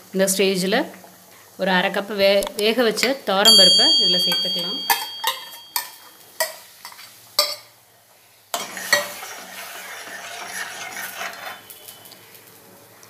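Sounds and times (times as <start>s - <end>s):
bowl knocking against steel pot: 3.6s - 6.0s
ladle stirring and scraping pot: 8.6s - 12.0s.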